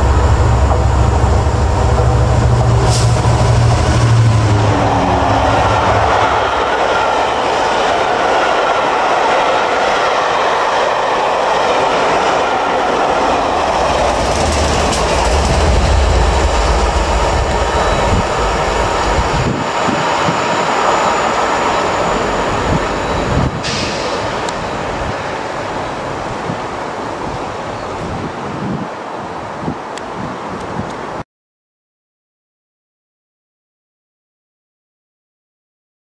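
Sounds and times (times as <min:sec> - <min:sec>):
diesel locomotive engine: 0:00.0 - 0:31.2
train wheels clattering on rails: 0:10.5 - 0:26.7.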